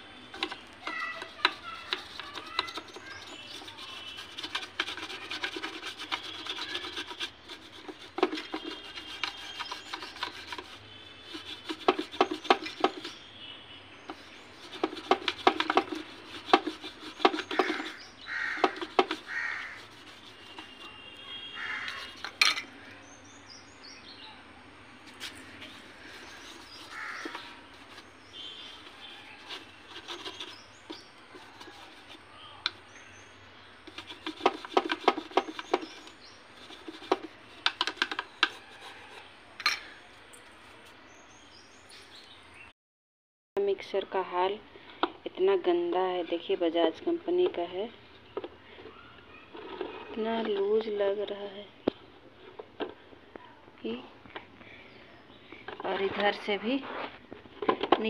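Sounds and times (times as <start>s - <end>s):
birds calling: 0.0s - 42.7s
stiff brush scrubbing plastic: 0.2s - 13.3s, 14.0s - 22.4s, 25.0s - 41.0s.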